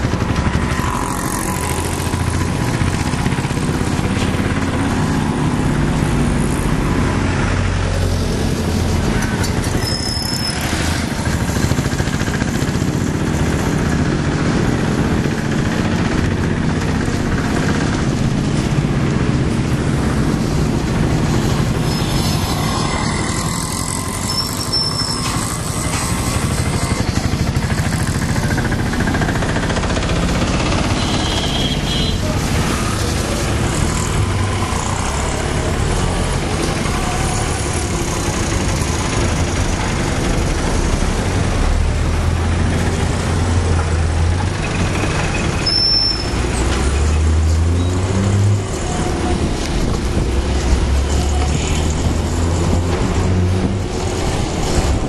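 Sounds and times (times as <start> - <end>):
road traffic engines: 0.0 - 55.0
high-pitched squeak: 9.6 - 11.0, 21.8 - 27.5, 44.6 - 46.7.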